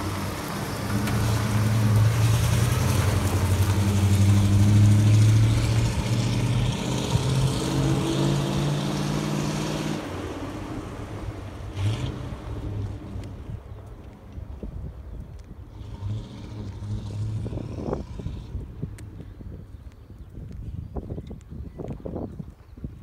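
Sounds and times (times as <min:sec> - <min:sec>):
truck engine driving past: 0:00.0 - 0:13.6.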